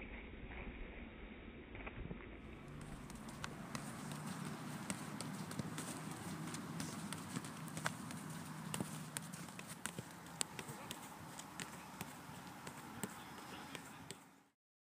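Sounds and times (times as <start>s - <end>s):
feet kicking a football: 2.5s - 14.4s
background murmur: 2.8s - 14.5s.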